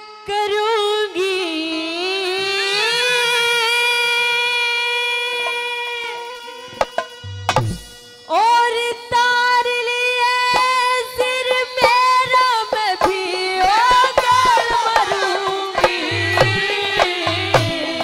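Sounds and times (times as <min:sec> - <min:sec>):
hand drum strokes: 0:06.8 - 0:08.0, 0:11.5 - 0:18.0
person singing: 0:10.0 - 0:18.0.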